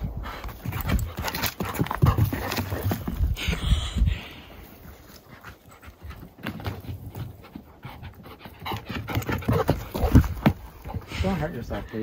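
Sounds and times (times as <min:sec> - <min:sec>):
dog panting hard: 0:00.0 - 0:03.2, 0:05.3 - 0:11.4.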